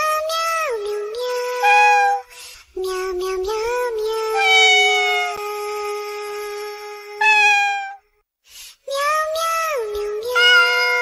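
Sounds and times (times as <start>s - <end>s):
kitten meowing: 1.6s - 2.2s, 4.4s - 5.4s, 7.2s - 8.0s.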